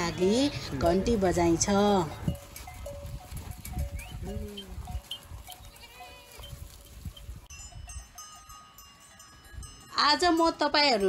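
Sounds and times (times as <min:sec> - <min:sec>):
hooves shuffling: 0:00.0 - 0:11.0
small animal bells clinking: 0:00.1 - 0:11.0
sheep and goats bleating: 0:02.1 - 0:07.0.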